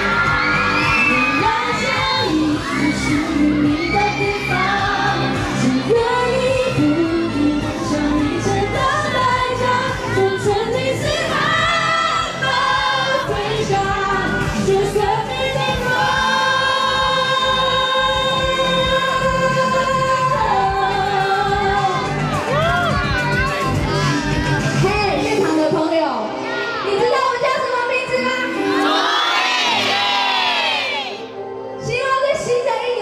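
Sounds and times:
woman singing live: 0.8s - 22.6s.

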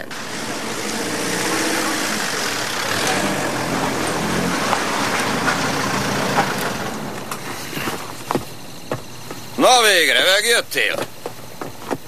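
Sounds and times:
car engine at low speed: 0.0s - 9.6s
tyre noise: 0.0s - 9.6s, 10.8s - 12.0s.

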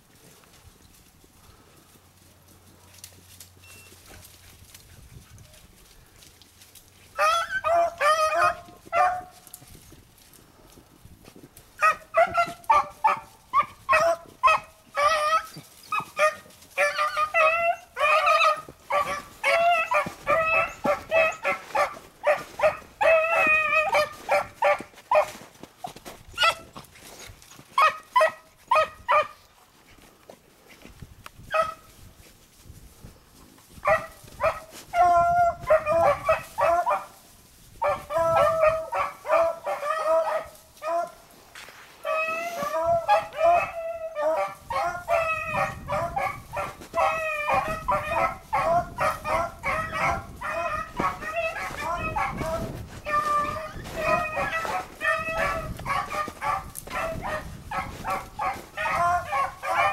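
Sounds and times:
dogs baying: 7.0s - 9.4s, 11.8s - 29.4s, 33.8s - 37.2s, 37.8s - 41.3s, 42.0s - 59.9s.

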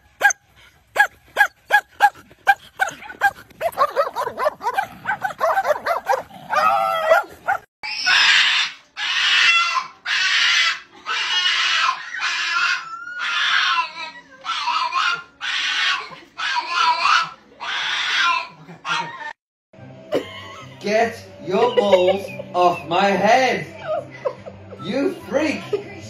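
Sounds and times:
small dog yowling: 2.5s - 19.4s
dog howling and grumbling: 3.7s - 7.6s.

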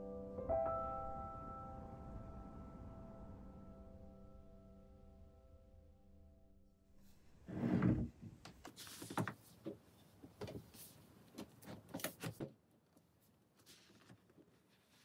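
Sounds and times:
books scraping and knocking: 8.7s - 12.5s.

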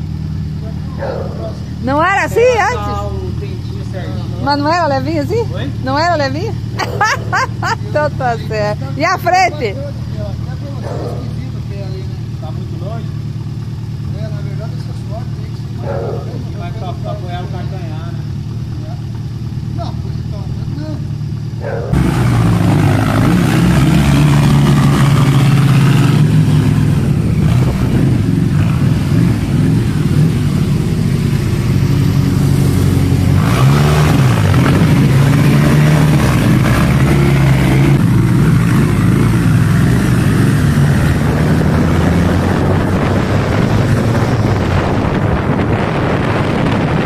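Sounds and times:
vehicle engine accelerating: 0.0s - 47.0s.

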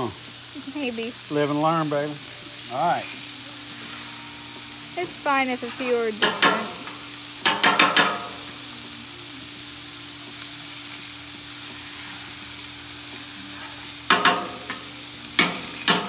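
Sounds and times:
meat sizzling on griddle: 0.0s - 16.0s
sharp metal clanks: 6.2s - 8.4s, 14.1s - 14.8s, 15.4s - 16.0s.

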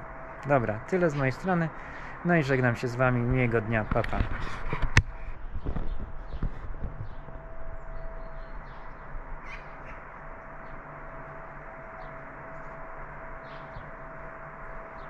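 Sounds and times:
faint constant hum: 0.0s - 15.0s
faint bird calls: 7.9s - 10.8s.

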